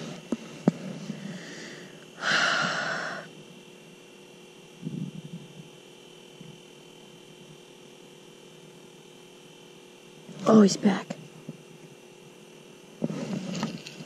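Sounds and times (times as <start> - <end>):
faint steady hum: 0.0 - 14.0
person exhaling: 1.2 - 3.3.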